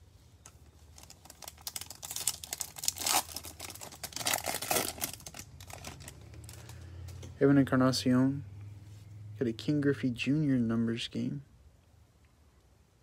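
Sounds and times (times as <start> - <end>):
foil wrapper crinkling and tearing: 0.9 - 6.8.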